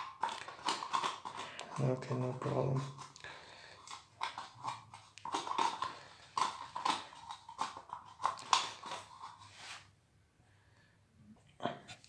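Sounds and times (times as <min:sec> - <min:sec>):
plastic bottle crinkling and scraping: 0:00.0 - 0:09.9.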